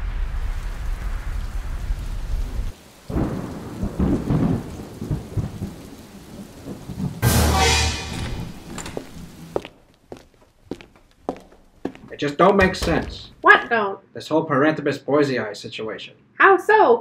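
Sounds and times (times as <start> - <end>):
loud thunderclap: 0.0 - 9.4
low rolling thunder: 0.0 - 9.4
steady rain: 0.0 - 13.6.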